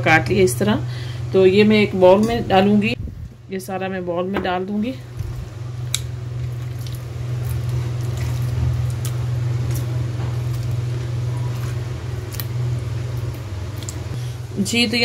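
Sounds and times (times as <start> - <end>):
steady low hum: 0.0 - 15.0
wet squishing of raw chicken: 5.9 - 10.8.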